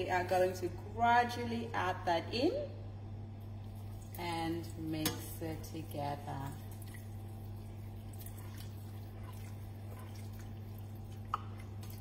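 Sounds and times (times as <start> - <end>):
milk pouring into saucepan: 5.8 - 12.0.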